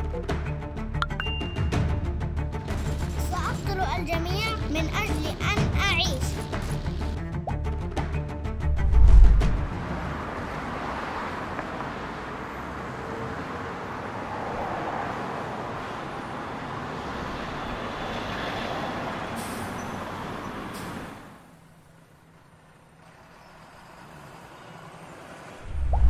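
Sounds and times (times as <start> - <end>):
bus engine and road noise: 0.0 - 26.0
air brake hisses: 19.4 - 20.0
deep boom: 25.7 - 26.0.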